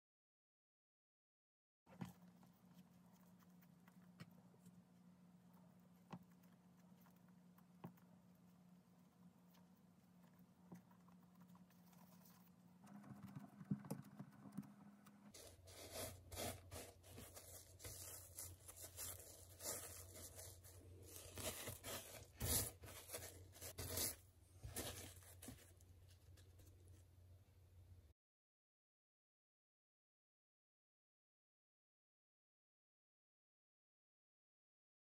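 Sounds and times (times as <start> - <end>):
hands shaping dough: 1.9 - 27.0
dough rolled in bread crumbs: 1.9 - 27.1
low steady hum: 1.9 - 28.1.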